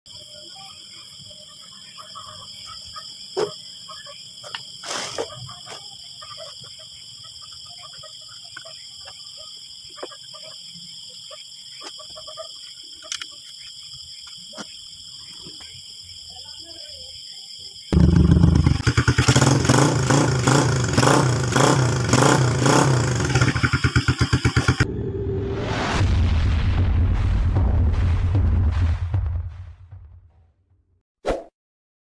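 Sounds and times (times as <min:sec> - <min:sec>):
night insects chirring: 0:00.1 - 0:25.1.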